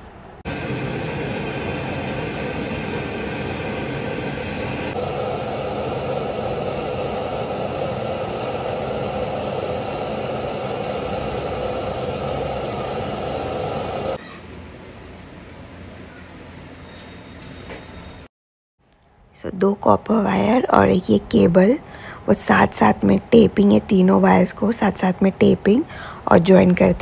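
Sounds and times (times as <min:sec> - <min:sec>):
torch flame hissing: 0:00.5 - 0:14.2.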